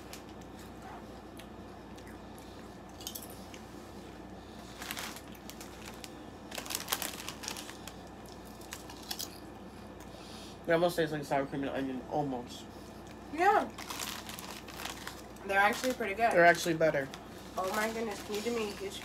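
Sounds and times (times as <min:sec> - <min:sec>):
crunching and chewing crisps: 0:00.0 - 0:10.2, 0:12.8 - 0:19.0
foil crisp packet crinkling: 0:04.5 - 0:09.5, 0:13.0 - 0:19.0.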